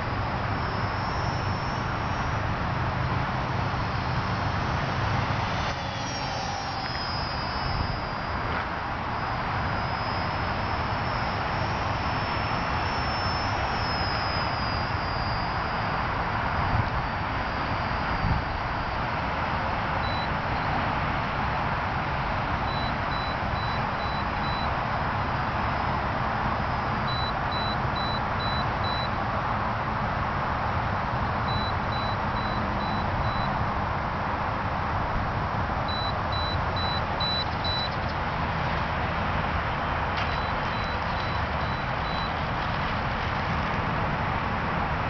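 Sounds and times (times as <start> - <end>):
steady rushing noise: 0.0 - 45.0
faint high electronic beeps: 0.5 - 2.4, 3.6 - 19.0, 20.0 - 20.8, 22.6 - 24.8, 26.6 - 29.1, 31.5 - 33.6, 35.9 - 38.2, 40.2 - 42.4.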